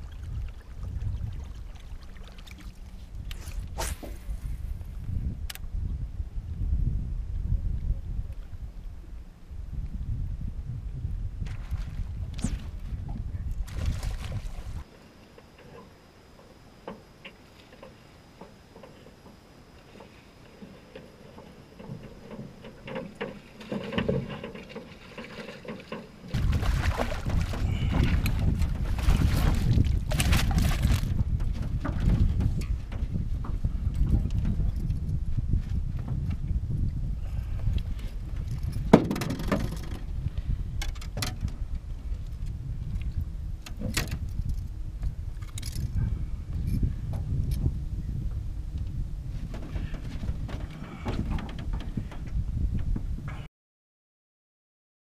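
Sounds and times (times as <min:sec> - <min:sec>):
wind rumbling on microphone: 0:00.0 - 0:53.5
lure churning water surface: 0:24.8 - 0:31.0.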